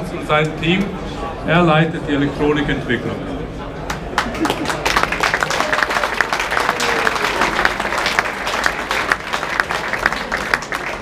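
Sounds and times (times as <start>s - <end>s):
crowd applauding: 3.9s - 11.0s.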